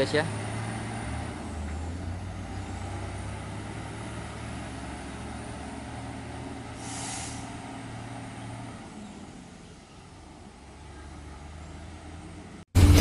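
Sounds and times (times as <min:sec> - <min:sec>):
diesel truck engine running: 0:00.0 - 0:13.0
short air hiss: 0:06.8 - 0:07.6.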